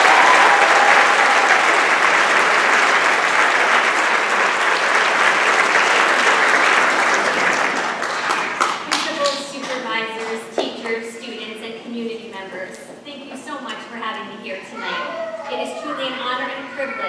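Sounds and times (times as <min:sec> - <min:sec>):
audience applauding: 0:00.0 - 0:09.3.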